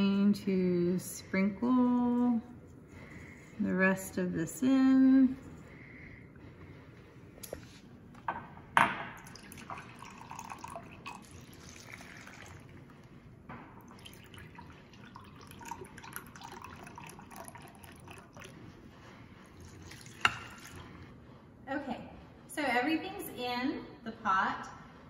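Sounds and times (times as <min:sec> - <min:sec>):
broth pouring into a pot: 0:09.2 - 0:18.7, 0:19.4 - 0:21.1.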